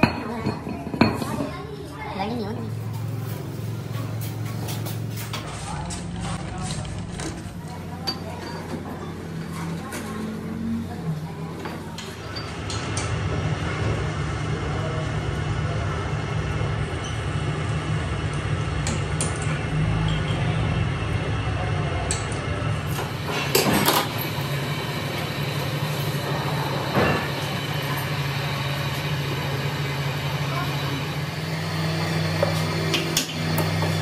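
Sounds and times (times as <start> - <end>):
lathe humming: 22.8 - 34.0.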